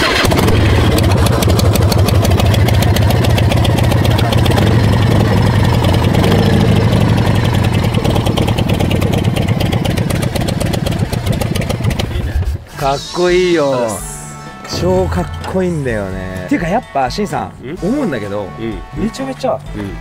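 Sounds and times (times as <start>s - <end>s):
motorcycle engine idling: 0.0s - 12.3s.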